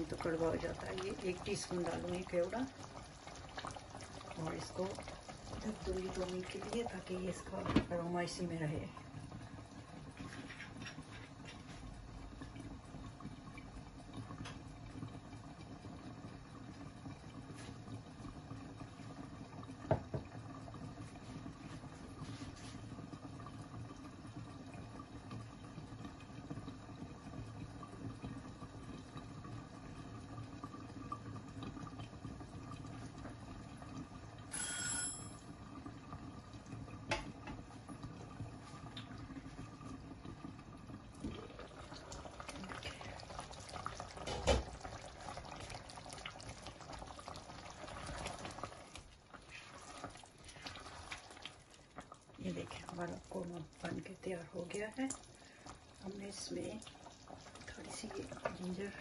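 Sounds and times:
pot bubbling: 0.0 - 59.0
brief high ringing tone: 34.5 - 35.4.

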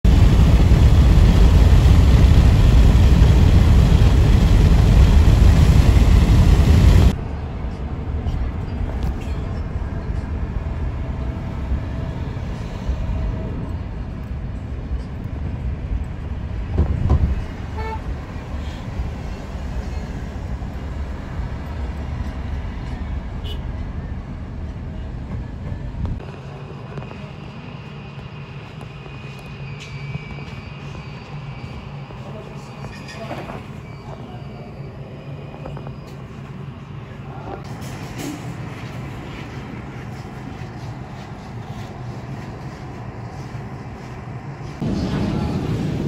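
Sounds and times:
loud road rushing noise: 0.0 - 29.0, 44.3 - 46.0.

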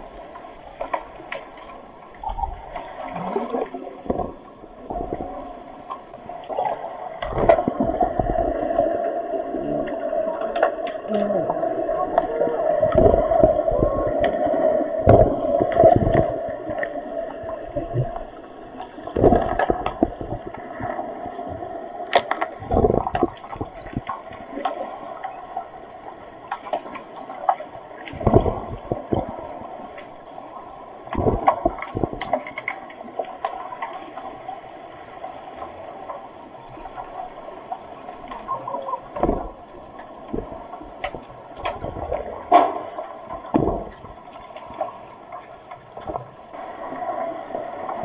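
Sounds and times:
underwater water churning: 0.0 - 48.0
low thumps: 12.1 - 14.4, 15.0 - 16.8, 19.1 - 21.6.

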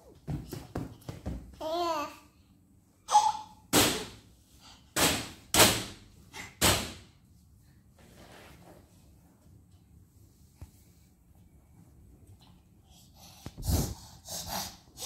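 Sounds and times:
baby babbling: 1.6 - 2.3, 3.1 - 3.6.

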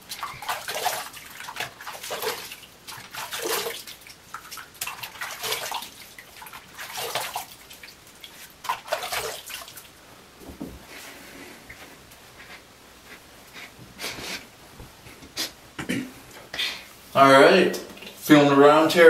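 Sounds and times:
water splashing on face: 0.0 - 9.9.

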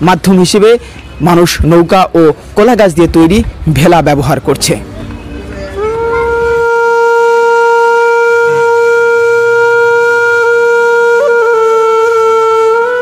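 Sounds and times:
long held wind instrument note: 5.6 - 13.0.

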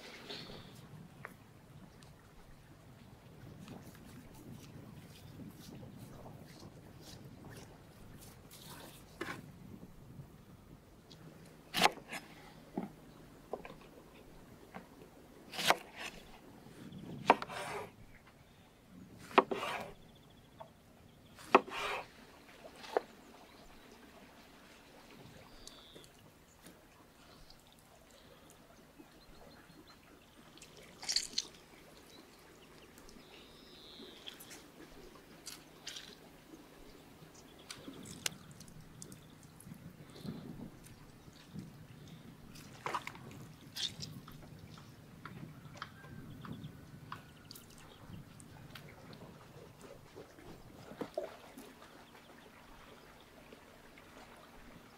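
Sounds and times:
wet rubbing and dripping: 30.5 - 33.2.

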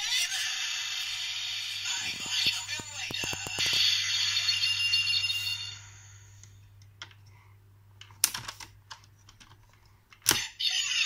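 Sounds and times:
toy electronic sound effect: 10.4 - 11.0.

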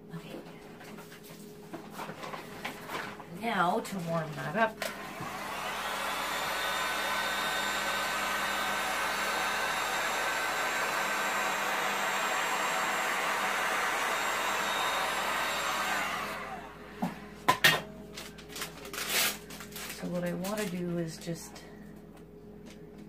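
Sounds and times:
heat gun blowing: 4.8 - 17.1.

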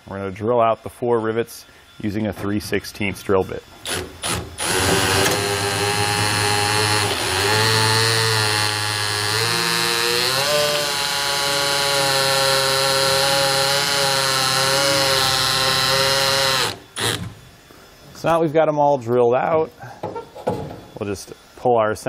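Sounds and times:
cordless drill drilling rivets: 3.8 - 17.4.

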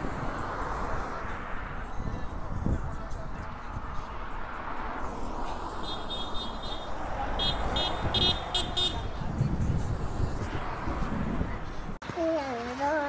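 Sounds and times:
low road noise rumble: 0.0 - 13.0
high-pitched vehicle horn toots: 5.8 - 9.2.

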